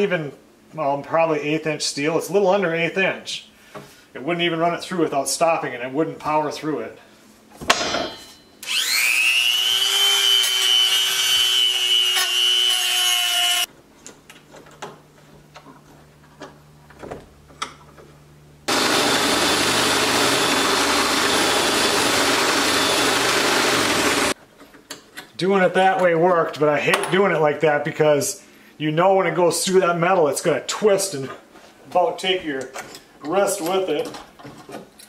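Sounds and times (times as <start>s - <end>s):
drill motor whining: 8.6s - 13.7s, 18.7s - 24.4s
power drill boring into steel: 8.6s - 13.7s, 18.7s - 24.4s.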